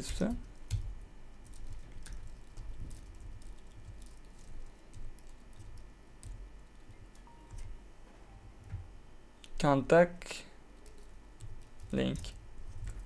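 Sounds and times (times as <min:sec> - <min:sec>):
computer keyboard typing: 0:00.1 - 0:07.7, 0:10.7 - 0:13.0.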